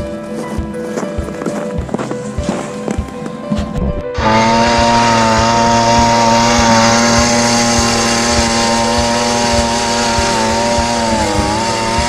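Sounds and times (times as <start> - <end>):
ice auger engine running: 4.1 - 12.0.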